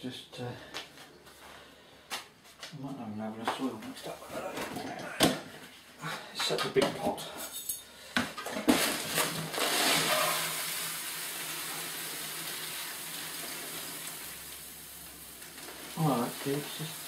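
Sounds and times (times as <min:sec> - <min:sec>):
soil pouring from metal scoop: 0:08.7 - 0:17.0.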